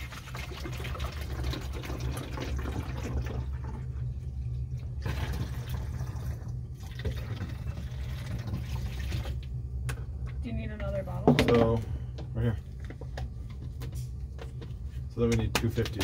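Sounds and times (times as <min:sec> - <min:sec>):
water pouring through a funnel: 0:00.0 - 0:09.5
steady low hum: 0:00.0 - 0:16.0.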